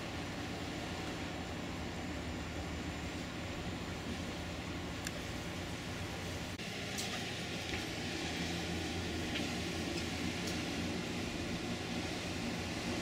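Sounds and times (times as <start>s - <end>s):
rushing water: 0.0s - 13.0s
ship engines droning: 0.0s - 13.0s.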